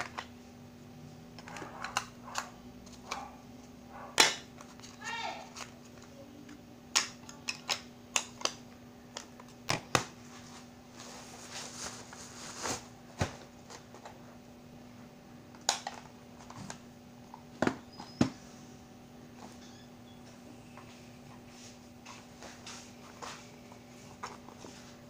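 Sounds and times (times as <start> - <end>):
steady low hum: 0.0 - 25.0
plastic rustling: 10.3 - 14.1.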